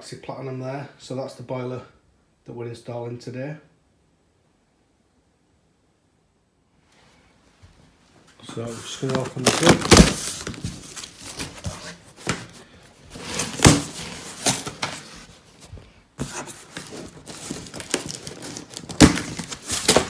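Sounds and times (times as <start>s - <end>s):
plastic bags crinkling: 8.5s - 15.4s, 16.5s - 20.0s
cardboard flaps pulled open: 9.0s - 12.6s, 13.2s - 15.3s.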